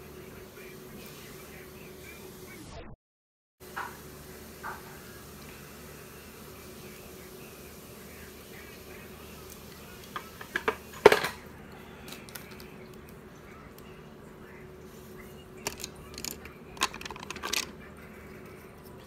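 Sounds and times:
faint steady hum: 0:00.0 - 0:02.7, 0:03.6 - 0:19.0
small hard objects clicking: 0:15.6 - 0:17.7.

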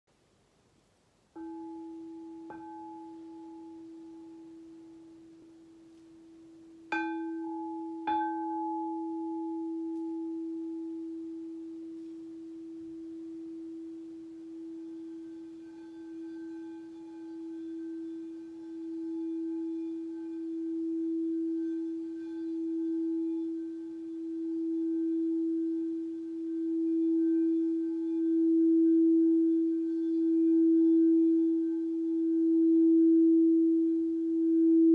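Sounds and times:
singing bowl struck with mallet: 0:01.4 - 0:05.0, 0:06.9 - 0:12.0
mallet circling singing bowl rim: 0:01.4 - 0:34.9.

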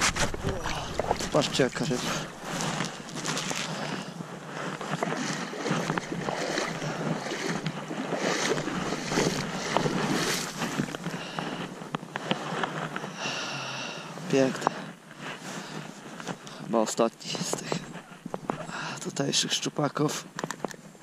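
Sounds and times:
wind on microphone: 0:00.0 - 0:12.6
water sloshing and splashing: 0:00.0 - 0:13.0, 0:17.2 - 0:19.1.

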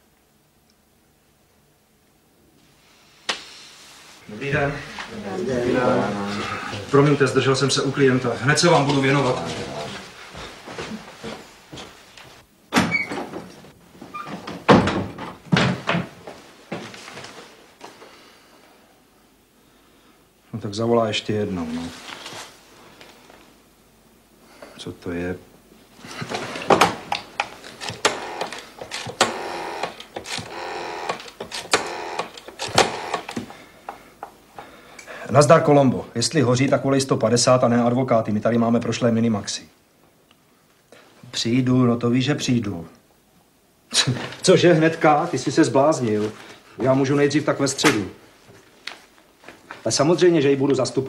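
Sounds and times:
door opening and shutting: 0:12.7 - 0:16.1, 0:26.3 - 0:33.6.

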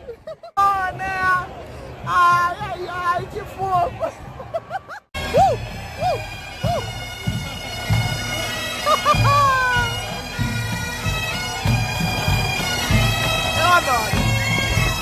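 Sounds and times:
drum beats: 0:02.0 - 0:15.0
bagpipes playing: 0:05.2 - 0:15.0.

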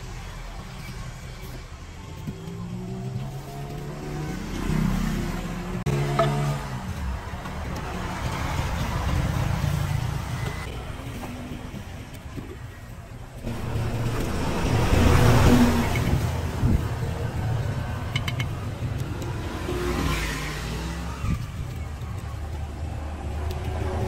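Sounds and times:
road traffic: 0:00.0 - 0:24.0
vehicle passing: 0:02.2 - 0:10.7, 0:13.5 - 0:24.0.

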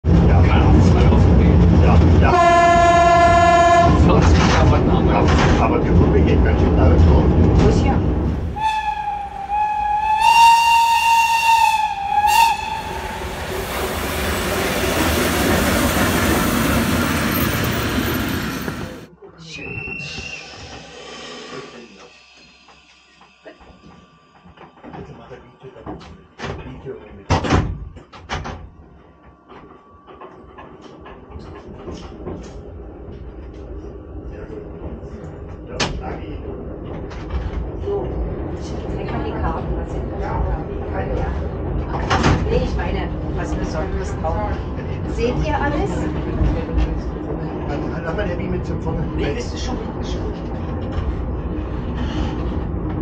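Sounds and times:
railcar rumbling on track: 0:00.0 - 0:53.0
railcar air whistle: 0:02.3 - 0:04.0, 0:08.6 - 0:13.7.

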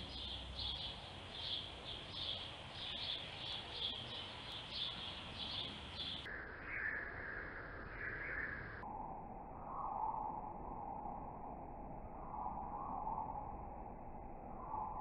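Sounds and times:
bird chirping: 0:00.0 - 0:08.8.

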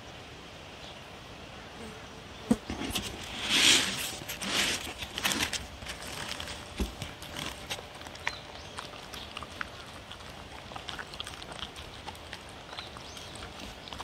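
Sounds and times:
dog crunching food: 0:02.8 - 0:14.0.

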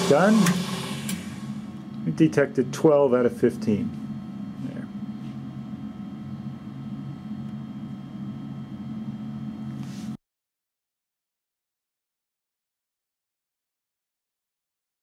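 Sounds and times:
electric motor and gearbox humming: 0:00.0 - 0:10.2.

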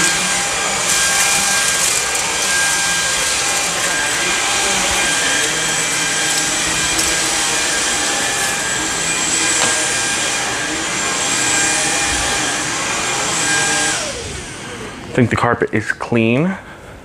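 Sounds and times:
stick vacuum running on carpet: 0:00.0 - 0:15.4.

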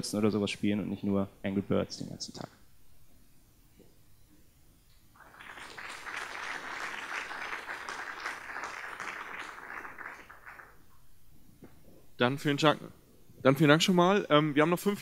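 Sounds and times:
audience applauding: 0:05.2 - 0:10.9.

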